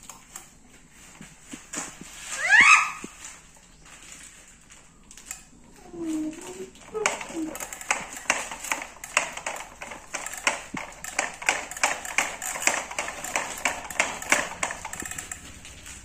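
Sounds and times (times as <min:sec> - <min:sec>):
plastic toy parts clicking: 0:06.3 - 0:15.7.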